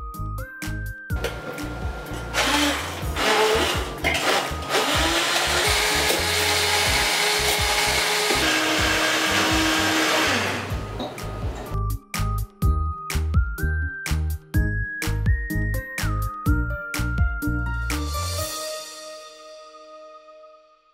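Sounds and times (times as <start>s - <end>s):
blender chopping fruit: 1.2s - 11.2s.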